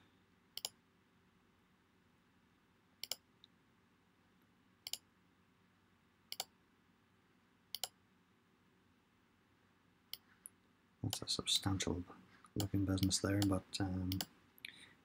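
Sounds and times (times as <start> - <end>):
computer mouse clicks: 0.6 - 0.8, 3.0 - 3.5, 4.8 - 5.1, 6.3 - 6.5, 7.7 - 8.0, 12.6 - 14.3.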